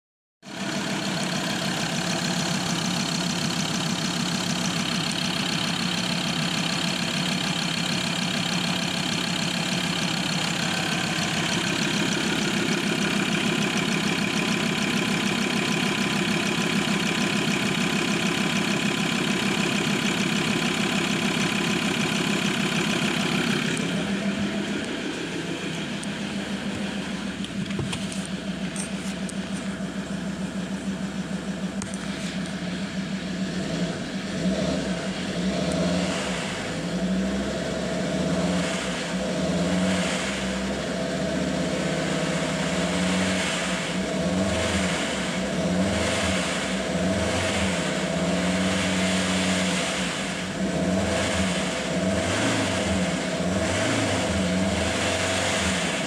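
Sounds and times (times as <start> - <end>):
diesel engine idling: 0.4 - 56.0.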